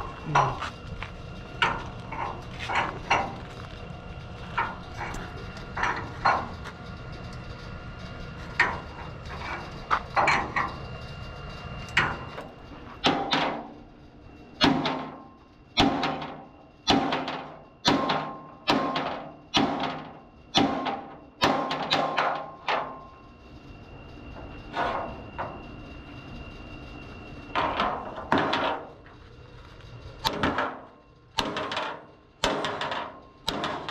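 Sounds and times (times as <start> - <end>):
metal clanks: 1.6 - 3.8, 4.4 - 7.5, 8.5 - 11.0, 30.2 - 33.9.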